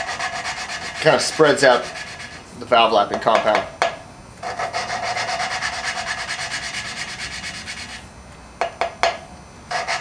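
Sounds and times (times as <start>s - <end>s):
valve lapping gritty rasp: 0.0s - 2.4s, 4.4s - 8.0s, 9.7s - 10.0s.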